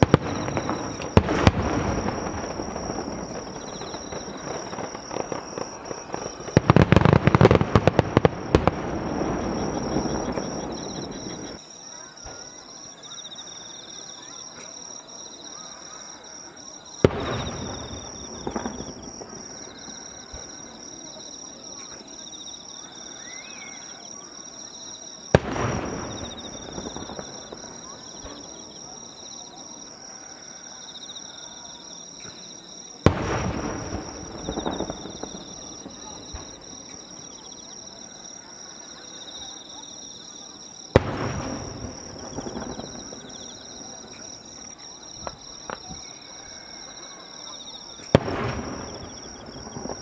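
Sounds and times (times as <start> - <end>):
firework shells bursting: 0.0 - 11.6.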